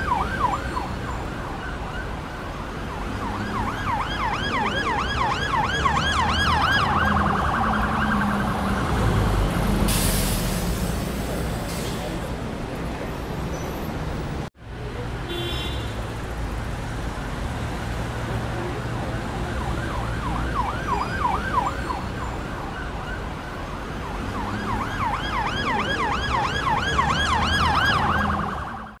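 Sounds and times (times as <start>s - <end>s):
emergency vehicle yelping siren: 0.0s - 9.5s, 18.6s - 29.0s
city traffic rumble: 0.0s - 29.0s.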